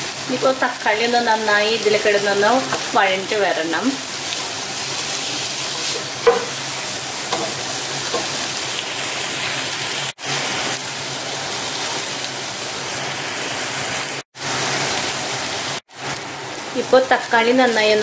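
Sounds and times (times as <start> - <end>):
food sizzling in oil: 0.0 - 18.0
wooden spatula stirring: 4.8 - 6.6
spatula knock: 5.9 - 6.6, 7.3 - 8.4.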